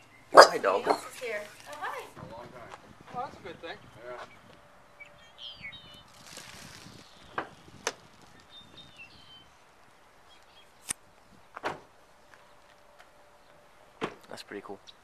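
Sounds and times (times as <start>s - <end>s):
wind rush: 2.1s - 4.6s, 5.5s - 9.6s
faint bird chirps: 3.8s - 6.2s, 6.9s - 9.6s.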